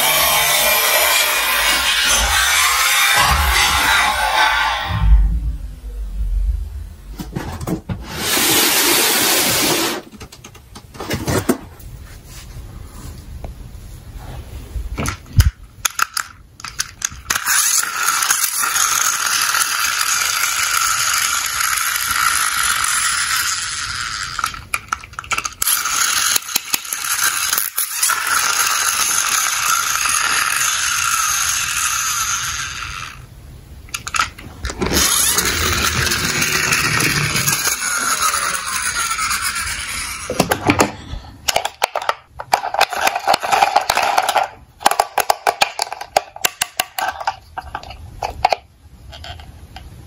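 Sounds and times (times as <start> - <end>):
toy gears whirring and rattling: 0.0 - 4.9, 15.0 - 33.3, 33.9 - 49.5
plastic toy cars clicking: 15.0 - 33.2, 33.9 - 49.9.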